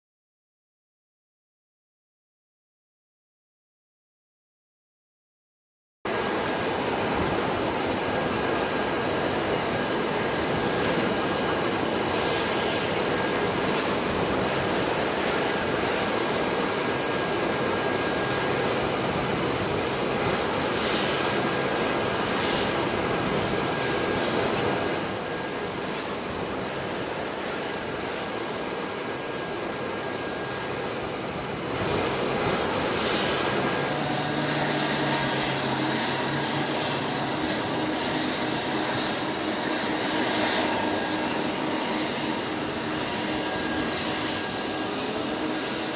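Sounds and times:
jet engines whining: 0:06.1 - 0:45.9.

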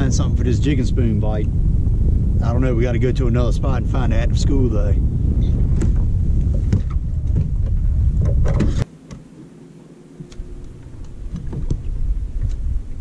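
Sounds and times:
loud low rumble: 0:00.0 - 0:08.9, 0:10.4 - 0:13.0
faint steady hum: 0:00.0 - 0:13.0.

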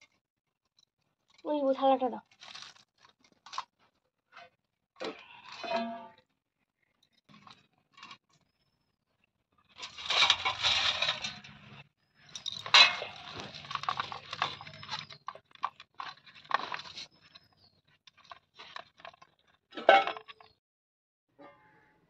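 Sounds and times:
steel dishes scraping on concrete: 0:09.8 - 0:15.2.

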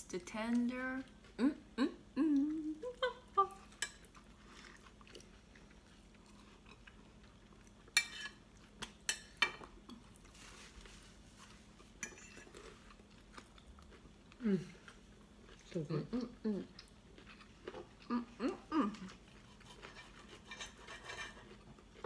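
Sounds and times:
quiet chewing: 0:01.0 - 0:22.0
person humming: 0:01.4 - 0:03.7, 0:18.1 - 0:19.1
cutlery clicking against plates: 0:08.0 - 0:10.0.

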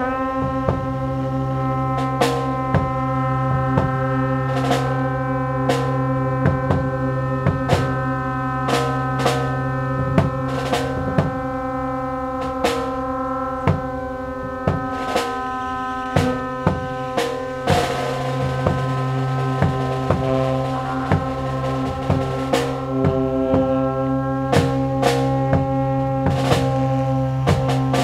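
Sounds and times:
brass and wind chords: 0:00.0 - 0:28.0
low tuba drone: 0:00.0 - 0:28.0
drum and snare strikes: 0:16.2 - 0:23.7, 0:24.5 - 0:26.8.

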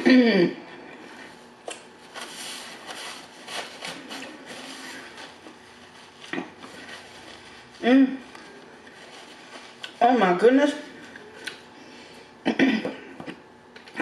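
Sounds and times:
paper napkin crinkling: 0:02.0 - 0:10.3.

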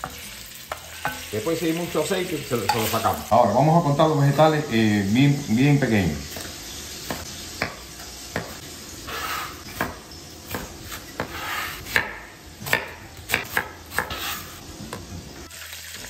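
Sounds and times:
meat sizzling in pan: 0:00.0 - 0:16.0
knife chopping on cutting board: 0:07.1 - 0:14.6.

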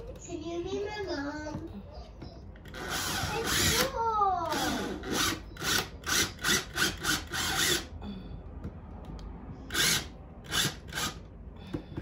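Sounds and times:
cordless drill bursts: 0:02.7 - 0:03.9, 0:04.5 - 0:07.9, 0:09.7 - 0:11.3.

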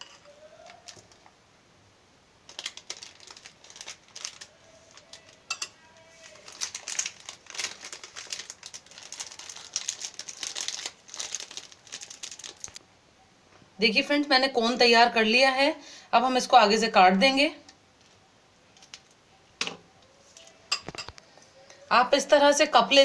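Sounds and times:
plastic bag crinkling: 0:02.5 - 0:12.8.

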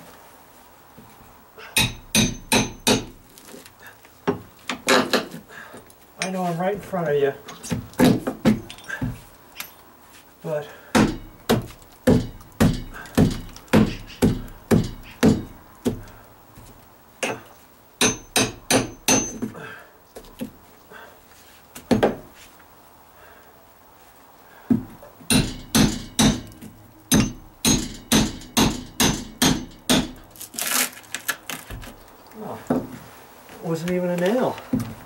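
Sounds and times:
hammer striking wood: 0:01.8 - 0:03.2, 0:10.9 - 0:16.1, 0:18.0 - 0:19.5, 0:24.7 - 0:30.2.

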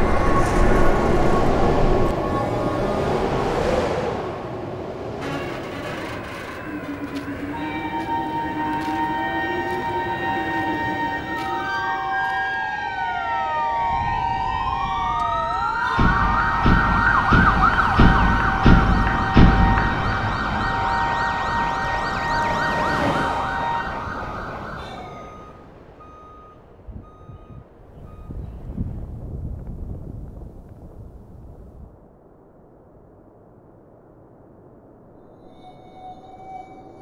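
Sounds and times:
sirens wailing: 0:00.0 - 0:28.4
high ringing tone: 0:05.2 - 0:13.3, 0:15.2 - 0:28.4, 0:35.3 - 0:37.0
heavy low thumps: 0:15.9 - 0:24.6.

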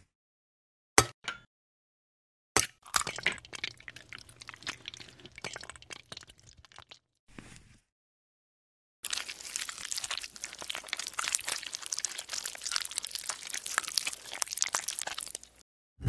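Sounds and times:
small wet crackles and pops: 0:02.9 - 0:07.1, 0:09.0 - 0:15.6
thick liquid pouring onto crumbs: 0:03.0 - 0:07.0, 0:09.0 - 0:15.6.

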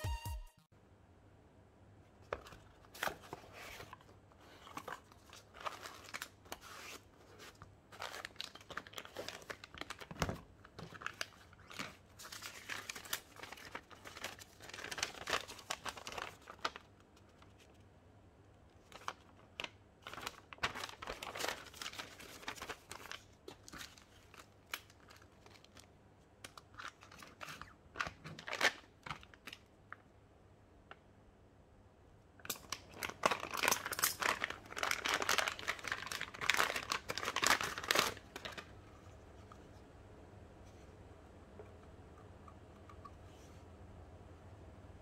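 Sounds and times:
paper and plastic packaging crinkling: 0:02.2 - 0:17.9, 0:18.7 - 0:29.7, 0:32.5 - 0:39.7
faint low hum: 0:28.9 - 0:45.0.

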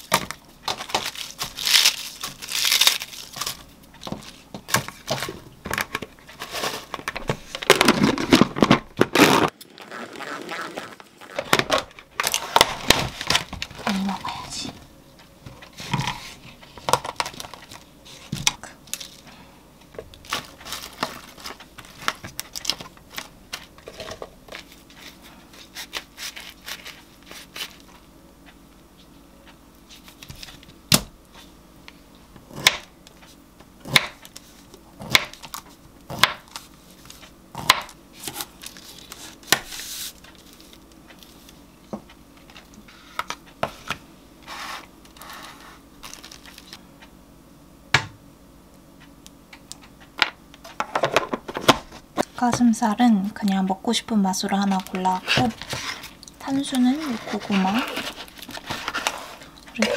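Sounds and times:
plastic packaging rustle: 0:00.0 - 0:14.5, 0:20.1 - 0:28.0, 0:44.5 - 0:46.8, 0:54.6 - 0:59.8.

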